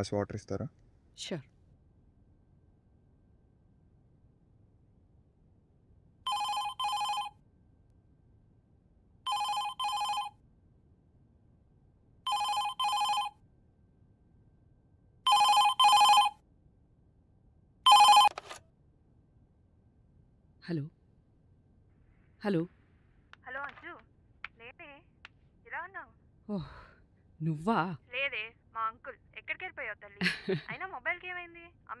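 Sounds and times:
telephone electronic double ring: 17.9 - 18.6.

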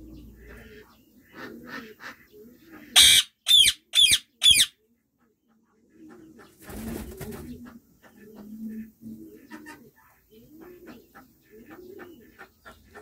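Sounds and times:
parakeets calling: 3.0 - 4.7.

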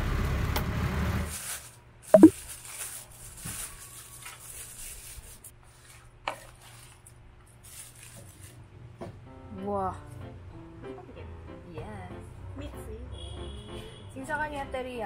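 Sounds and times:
rustling takeout packaging: 1.3 - 8.6.

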